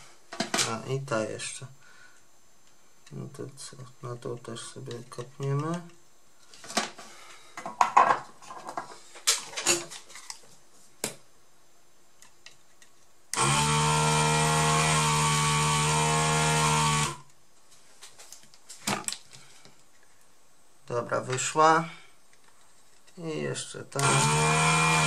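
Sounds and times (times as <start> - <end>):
desoldering vacuum pump running: 13.3 - 17.3, 23.9 - 25.0.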